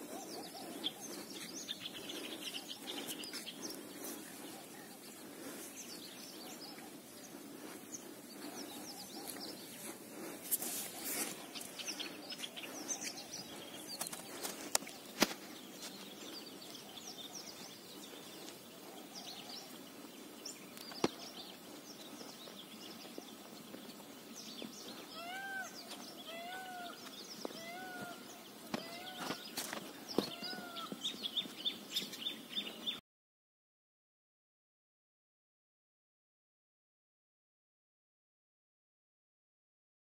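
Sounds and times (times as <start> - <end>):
outdoor background hiss: 0.0 - 33.0
small birds chirping: 0.0 - 33.0.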